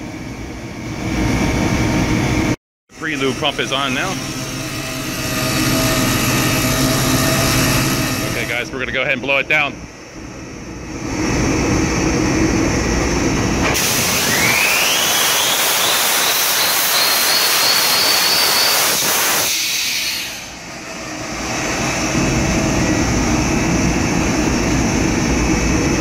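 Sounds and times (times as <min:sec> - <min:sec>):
drone of running generators: 0:00.0 - 0:26.0
rising engine whine: 0:00.0 - 0:26.0
compressed air hissing from cylinders: 0:15.0 - 0:20.6.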